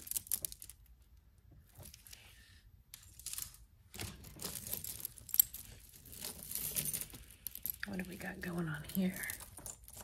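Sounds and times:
metal chains and beads clinking: 3.0 - 10.0.

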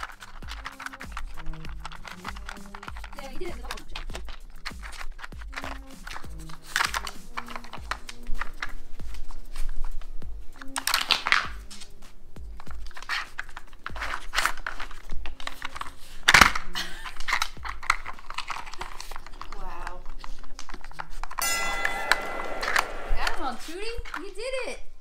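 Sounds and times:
plastic puzzle lids clattering: 0.0 - 8.8, 12.9 - 21.1
background music with low beat: 0.0 - 13.0.

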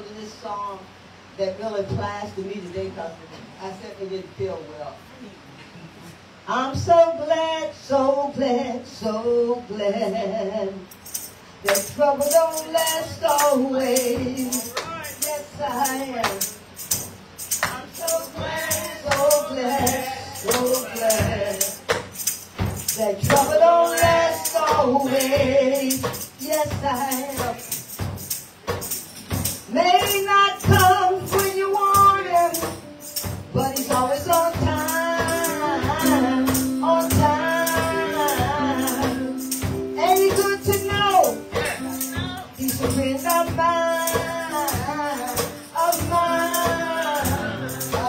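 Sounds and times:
woman singing into a microphone: 6.5 - 10.9, 11.6 - 16.6, 17.6 - 21.9, 22.9 - 27.8, 29.7 - 48.0
jingling hand percussion: 10.9 - 48.0.

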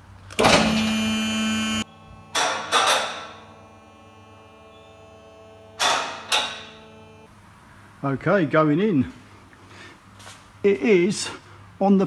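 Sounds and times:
clunks: 0.3 - 3.5, 4.6 - 7.2
vehicle lift electric motor: 0.3 - 7.3.

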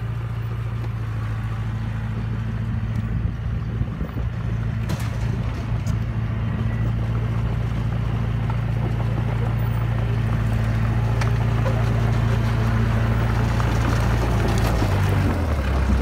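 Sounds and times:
bulldozer engine running: 0.0 - 16.0.

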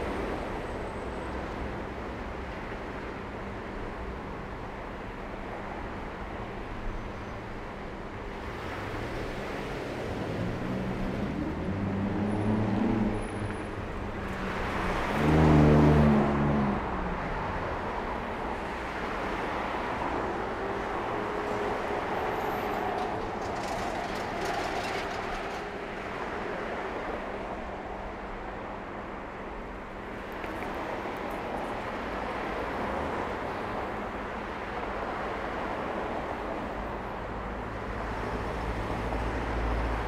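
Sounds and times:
street traffic: 0.0 - 40.0
loud vehicle passing close: 14.4 - 17.0.

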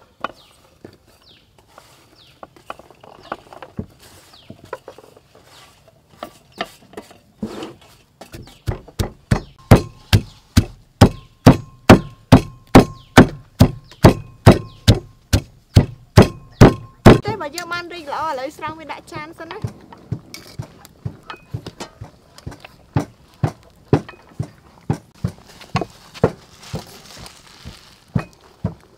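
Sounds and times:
pestle pounding in clay mortar: 8.3 - 17.4, 18.6 - 26.9, 28.1 - 28.9.

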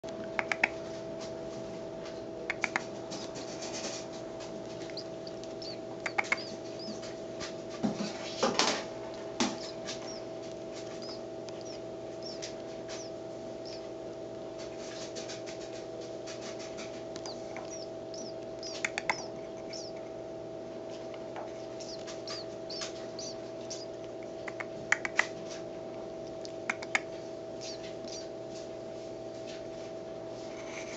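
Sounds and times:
steady hum: 0.0 - 30.9
sharp clicks: 0.2 - 0.8, 2.5 - 3.9, 4.6 - 7.2, 8.3 - 13.8, 17.1 - 20.0, 21.8 - 25.3, 26.2 - 28.2
nestling bird begging cheeps: 27.6 - 28.3.

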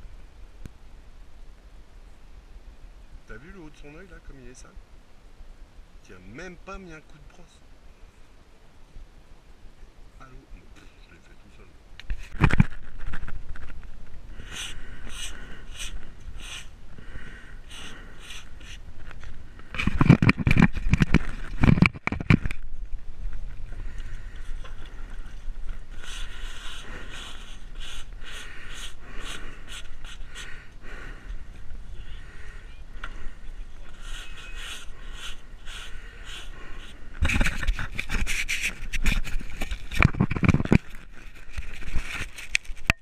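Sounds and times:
rug rustling against microphone: 12.1 - 32.6, 33.2 - 42.9.

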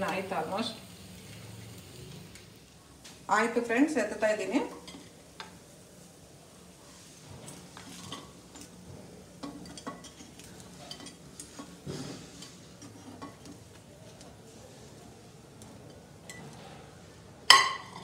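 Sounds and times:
oil sizzling faintly: 0.0 - 18.0
utensil scraping a pan: 9.4 - 13.6.

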